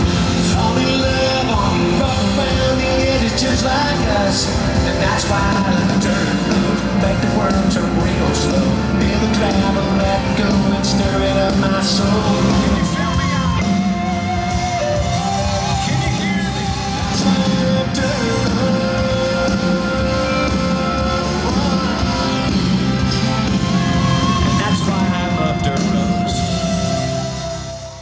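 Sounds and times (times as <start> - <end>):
country rock song: 0.0 - 28.0
man singing long notes: 0.0 - 28.0.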